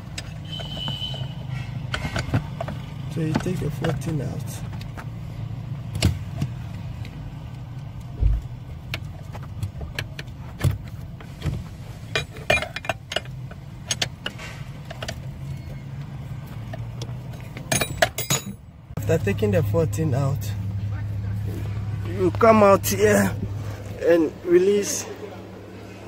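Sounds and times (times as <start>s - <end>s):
wrench clicking and clinking: 17.6s - 18.6s.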